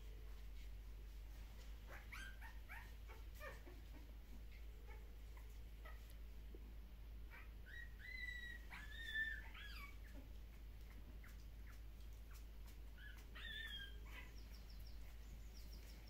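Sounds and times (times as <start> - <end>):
puppy squealing and whimpering: 1.9 - 4.1, 4.8 - 6.1, 7.3 - 14.8.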